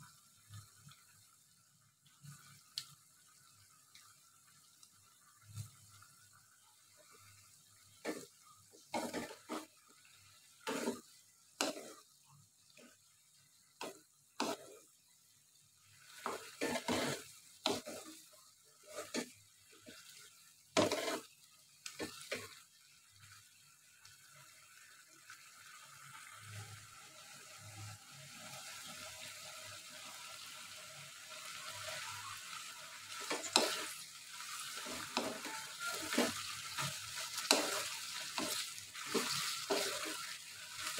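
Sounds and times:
sauce sizzling: 0.0s - 40.9s
wooden spatula scraping wok: 8.0s - 9.8s, 10.6s - 12.1s, 13.8s - 14.9s, 16.1s - 22.6s, 33.1s - 40.9s.

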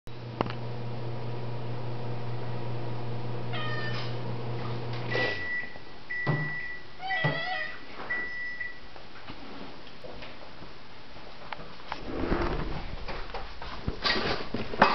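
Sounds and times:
appliance hum: 0.1s - 6.8s, 11.8s - 14.9s
cat meowing: 3.5s - 4.1s, 7.0s - 7.8s.

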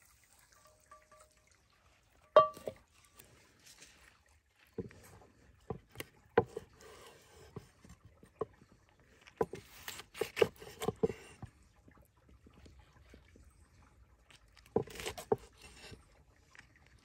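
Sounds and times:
cleaver chopping on wooden board: 9.5s - 11.3s.

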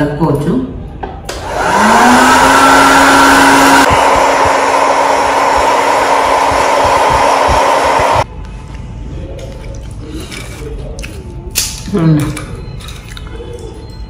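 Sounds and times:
air fryer fan motor humming: 1.3s - 8.3s.

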